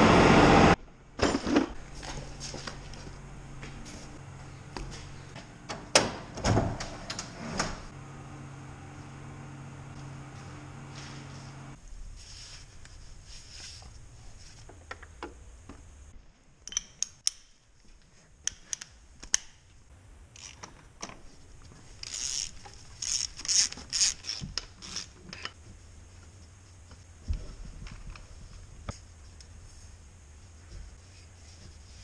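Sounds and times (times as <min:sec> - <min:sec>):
socket wrench ratcheting: 0:22.0 - 0:25.5.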